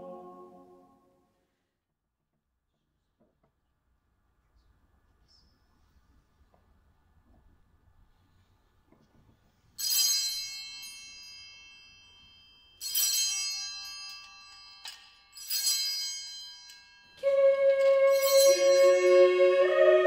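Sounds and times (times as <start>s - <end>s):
choir singing sustained chords: 0.0s - 1.2s, 17.2s - 20.0s
small altar bells ringing: 9.8s - 19.6s.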